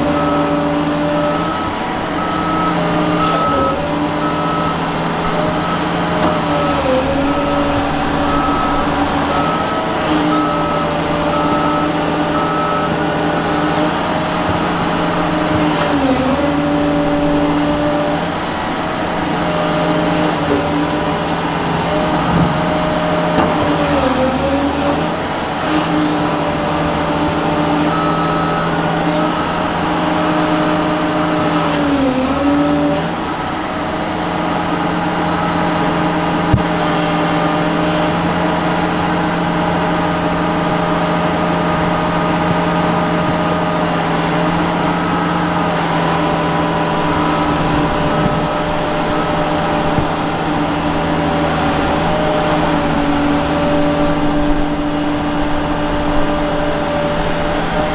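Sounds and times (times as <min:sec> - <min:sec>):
excavator diesel engine running: 0:00.0 - 0:57.9.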